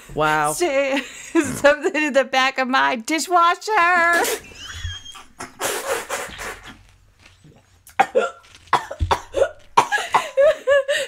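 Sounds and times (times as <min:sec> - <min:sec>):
person coughing and spluttering: 0:07.5 - 0:10.5.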